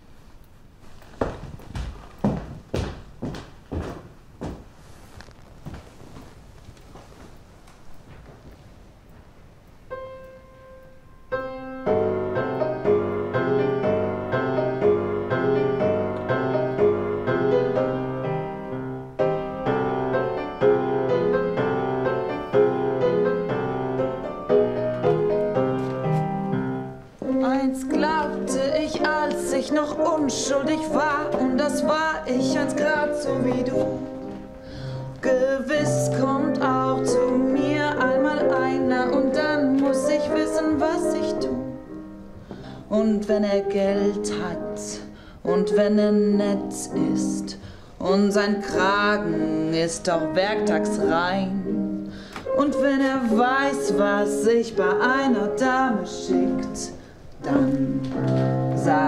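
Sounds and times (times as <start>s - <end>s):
grand piano playing: 9.8s - 59.0s
woman singing: 27.2s - 34.4s, 35.1s - 41.8s, 42.9s - 59.0s.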